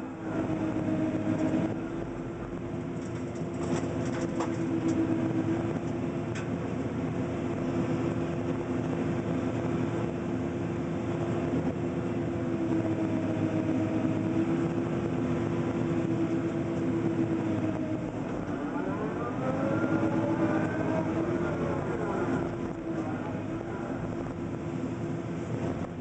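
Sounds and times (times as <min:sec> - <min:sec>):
excavator engine and hydraulics: 0:00.0 - 0:26.0
hydraulic whining tones: 0:12.0 - 0:26.0.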